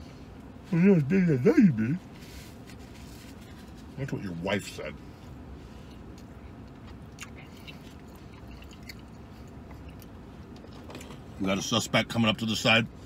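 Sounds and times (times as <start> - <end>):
man chewing food: 5.2 - 11.4.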